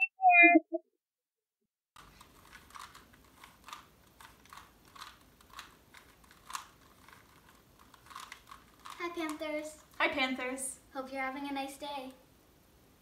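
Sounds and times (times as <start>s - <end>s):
plastic puzzle cube clicks: 2.0s - 10.0s.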